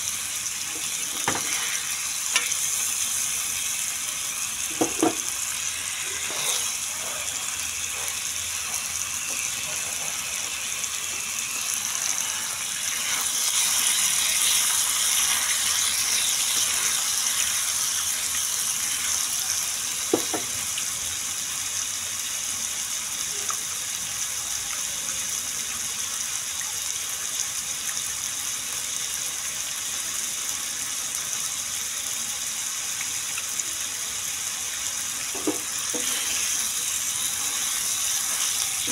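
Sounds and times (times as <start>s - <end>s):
chicken sizzling on a griddle: 0.0s - 38.9s
spatula knocking on pan: 4.7s - 5.3s, 20.1s - 20.5s, 35.3s - 36.2s.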